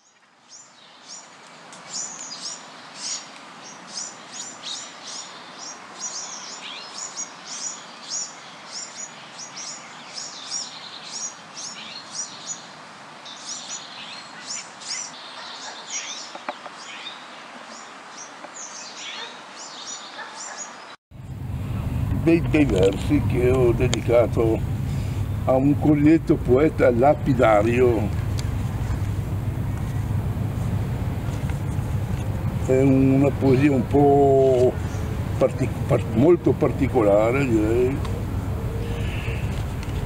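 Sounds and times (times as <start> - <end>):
birds chirping: 1.9 - 40.0
outdoor hiss: 20.8 - 40.0.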